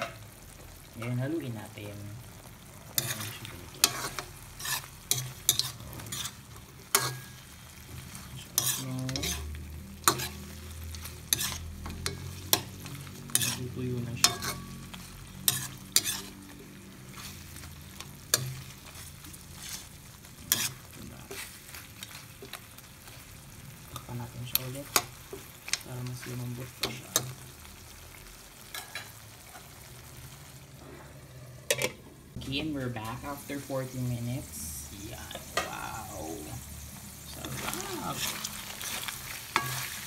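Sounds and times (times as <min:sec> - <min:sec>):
sauce bubbling and sizzling: 0:00.0 - 0:40.0
metal spoon scraping a wok: 0:02.9 - 0:23.2, 0:28.7 - 0:29.8, 0:37.3 - 0:40.0.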